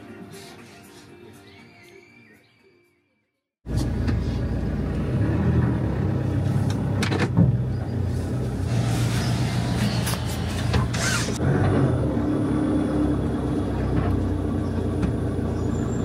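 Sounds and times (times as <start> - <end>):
road noise: 3.6 - 16.0
van engine running: 3.7 - 16.0.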